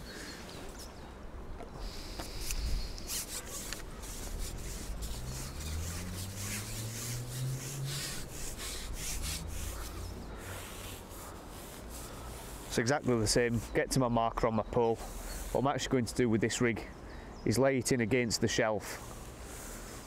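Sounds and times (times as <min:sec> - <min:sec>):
fishing pole sections scraping: 0:01.8 - 0:14.1.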